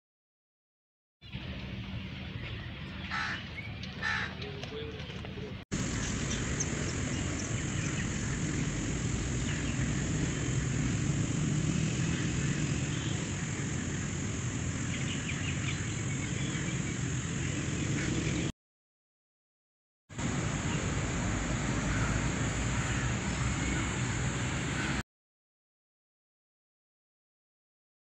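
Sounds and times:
low rumble: 0:05.8 - 0:15.0.

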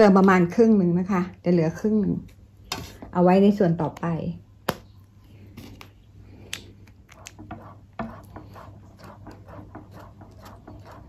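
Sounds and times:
spatula scraping a steel bowl: 0:07.3 - 0:11.0.

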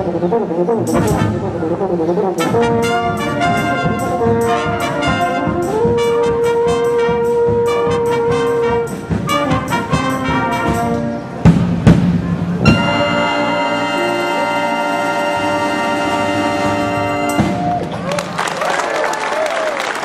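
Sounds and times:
euphonium solo: 0:00.0 - 0:11.5, 0:12.6 - 0:17.6
loud low accented notes: 0:00.0 - 0:17.8
wind band playing: 0:00.0 - 0:18.5
ticking accompaniment: 0:00.8 - 0:01.5, 0:02.4 - 0:12.0, 0:12.6 - 0:17.6.

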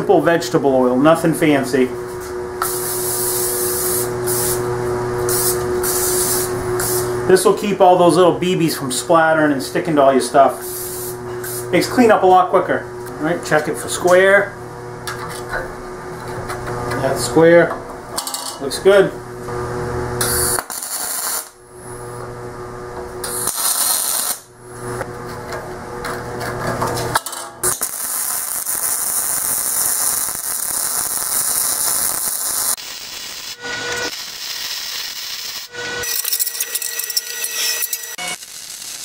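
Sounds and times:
welding arc: 0:02.6 - 0:07.1, 0:20.2 - 0:21.6, 0:23.2 - 0:24.5, 0:27.1 - 0:39.0.

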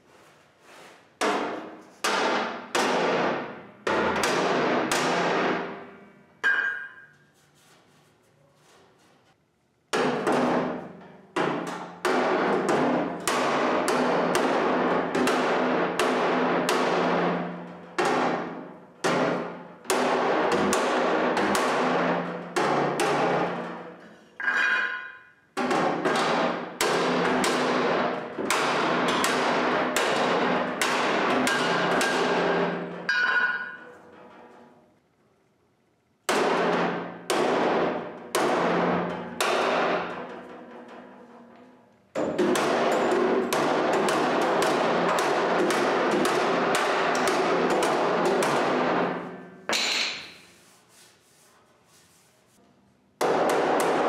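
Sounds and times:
hammer blows on sheet metal: 0:09.9 - 0:24.0, 0:24.8 - 0:34.0, 0:36.3 - 0:41.0, 0:42.2 - 0:51.2.

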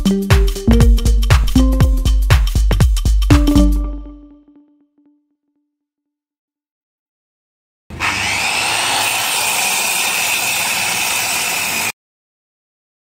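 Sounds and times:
circular saw cutting: 0:07.9 - 0:12.0.

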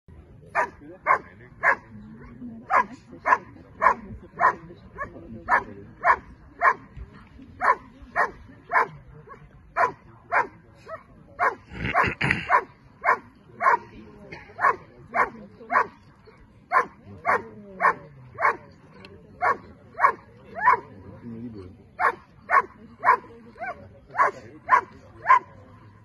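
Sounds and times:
dog barking: 0:02.7 - 0:06.8, 0:09.8 - 0:10.5, 0:16.7 - 0:18.6, 0:22.0 - 0:25.5.

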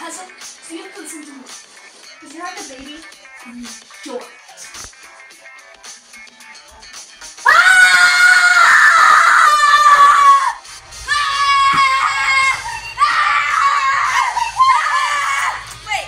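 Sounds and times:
low background music: 0:00.0 - 0:16.0
girl screaming: 0:07.4 - 0:15.6.

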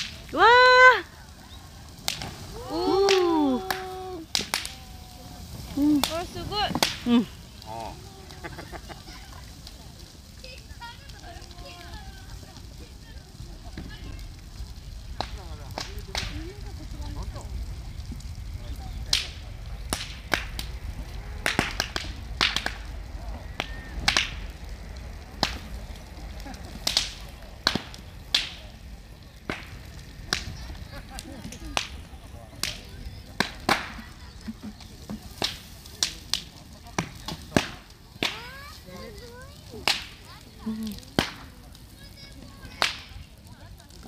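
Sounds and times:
bamboo cracking and popping: 0:00.0 - 0:44.0
low fire rumble: 0:00.0 - 0:44.0.

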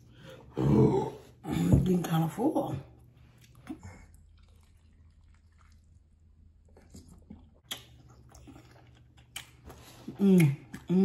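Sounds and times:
chewing: 0:03.3 - 0:10.9
mouth clicks and smacks: 0:07.0 - 0:08.3.

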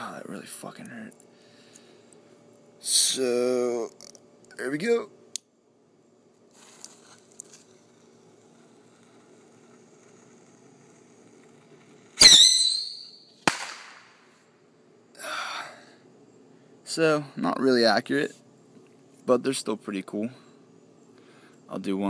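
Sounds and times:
high falling whistle: 0:12.2 - 0:13.4
sharp crack: 0:12.2 - 0:14.3
rocket launch blast: 0:13.4 - 0:14.2.

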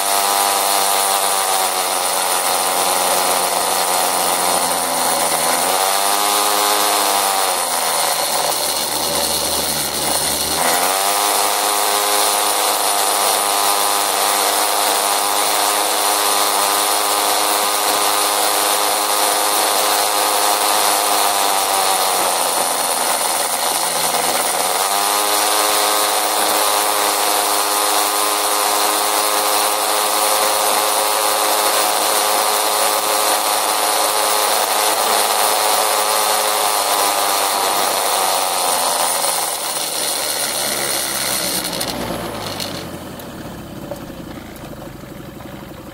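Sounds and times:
motor scooter engine drone: 0:00.0 - 0:45.9.

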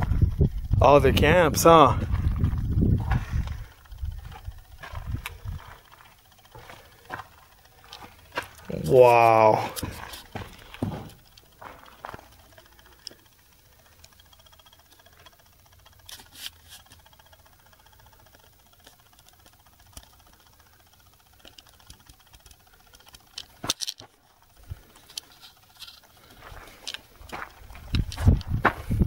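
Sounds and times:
faint footsteps: 0:01.9 - 0:12.6, 0:26.0 - 0:29.0.

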